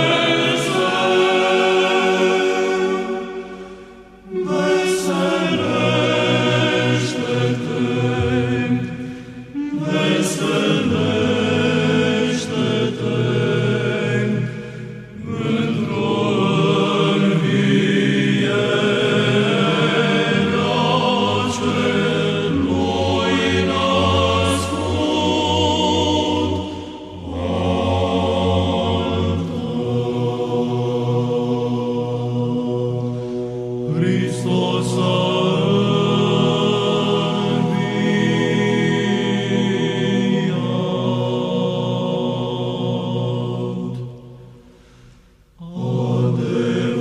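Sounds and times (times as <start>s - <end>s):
choir singing a slow chant: 0.0s - 47.0s
singers breathing: 3.1s - 4.2s, 8.8s - 9.6s, 14.4s - 15.2s, 33.0s - 33.8s, 44.5s - 45.6s.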